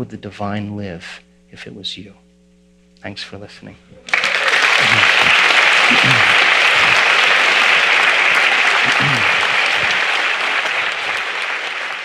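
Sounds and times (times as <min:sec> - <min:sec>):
audience applauding: 0:04.1 - 0:12.0.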